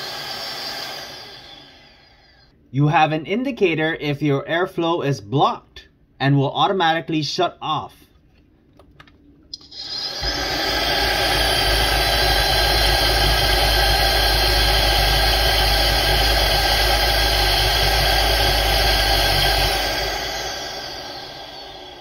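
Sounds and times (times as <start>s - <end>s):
vacuum motor whine: 0.0s - 2.4s, 9.6s - 22.0s.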